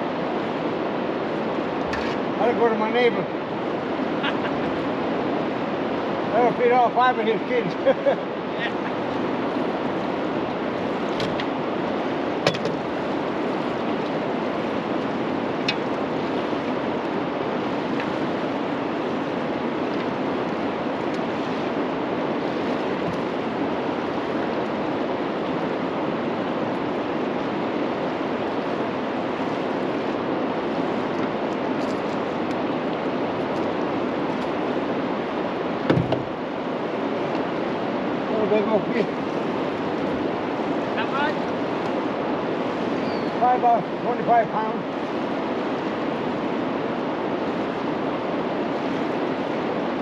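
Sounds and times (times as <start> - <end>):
river water rushing: 0.0 - 50.0
knock: 35.9 - 36.3.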